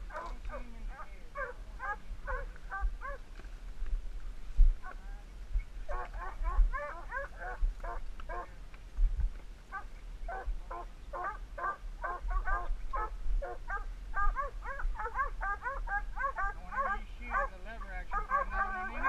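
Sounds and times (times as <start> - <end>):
hounds barking: 0.1 - 3.2, 5.9 - 8.6, 9.7 - 19.0.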